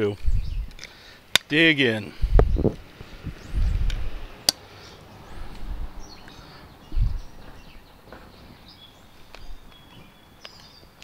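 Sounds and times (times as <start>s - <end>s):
faint bird chirps: 0.2s - 0.7s, 4.8s - 11.0s
low muffled thumps: 2.2s - 4.1s, 6.9s - 7.6s.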